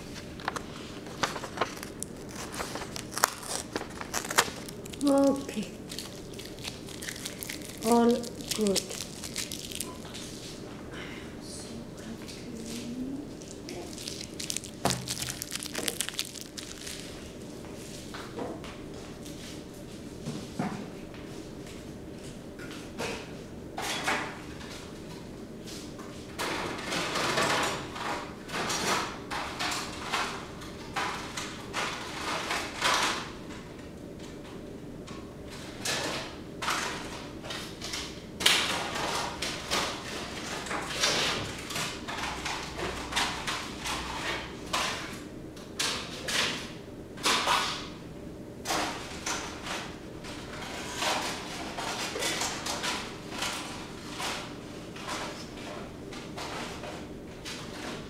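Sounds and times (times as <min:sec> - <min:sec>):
adhesive tape being peeled: 0:01.4 - 0:10.0, 0:13.4 - 0:17.1.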